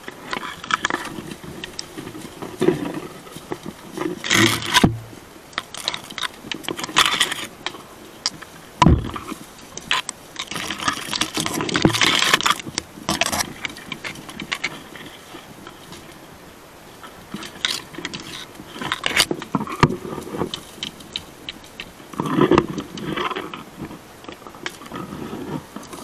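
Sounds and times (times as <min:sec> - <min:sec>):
dry twigs crackling and snapping: 0:00.0 - 0:16.3, 0:16.9 - 0:26.0
dull thumps: 0:02.0 - 0:05.2, 0:08.8 - 0:09.4.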